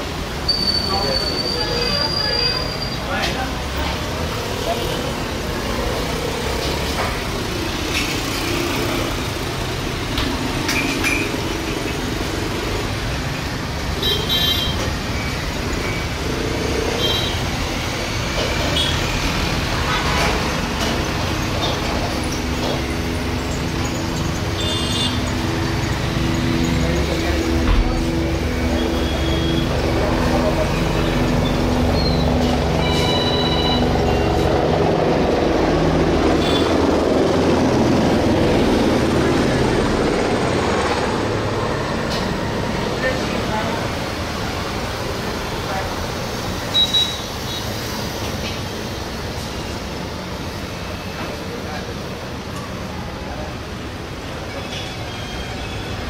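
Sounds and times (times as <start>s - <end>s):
jet engines rumbling: 33.8s - 46.5s.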